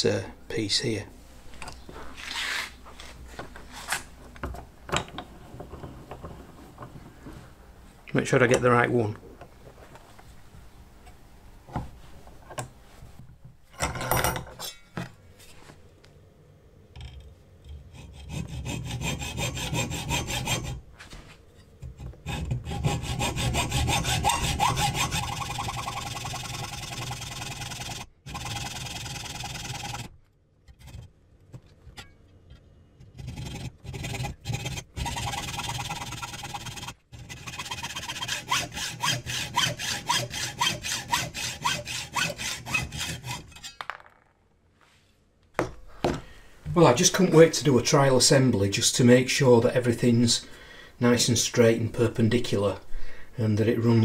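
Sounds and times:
hacksaw cutting steel: 18.0s - 20.8s, 22.2s - 30.1s, 33.2s - 43.8s.

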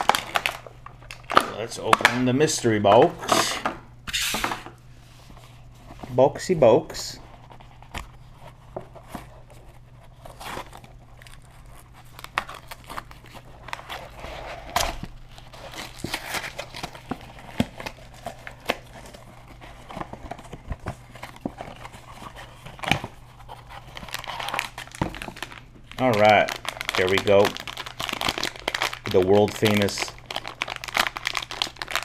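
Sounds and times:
packaging tearing and crinkling: 0.0s - 2.3s, 10.0s - 32.0s.

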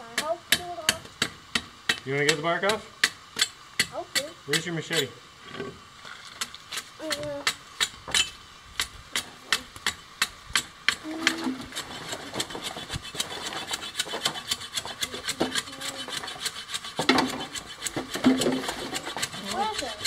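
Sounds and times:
blade scraping bark off wood: 8.8s - 20.0s.

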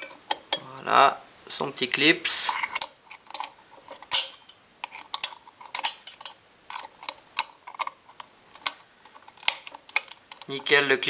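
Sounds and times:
metal circlip clicking and scraping: 2.4s - 10.6s.

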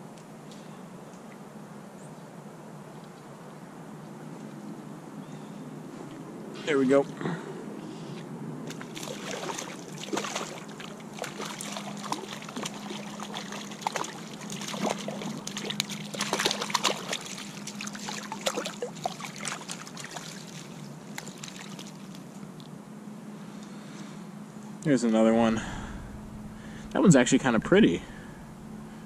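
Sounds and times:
fish splashing in water: 8.7s - 22.3s.

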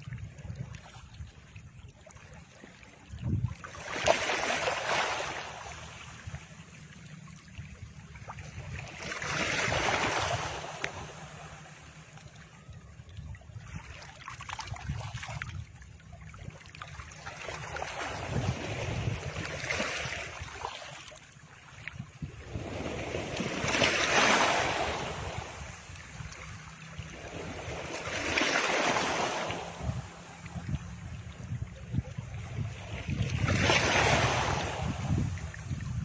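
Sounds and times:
ocean waves washing: 3.6s - 7.6s, 22.2s - 36.0s
low steady rumble: 5.3s - 9.0s, 24.6s - 28.2s, 29.3s - 33.5s.

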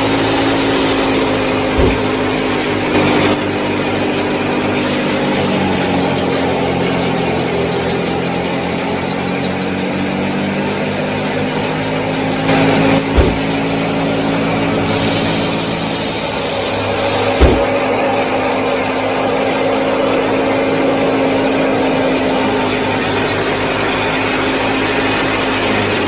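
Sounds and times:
short thump: 1.8s - 2.4s, 13.1s - 13.6s, 17.1s - 17.8s.

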